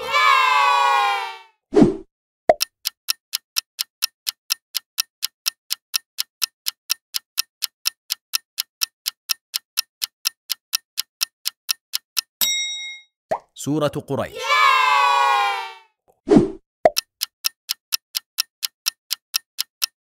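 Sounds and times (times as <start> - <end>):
clock ticking countdown: 2.5 - 12.4, 16.9 - 20.0.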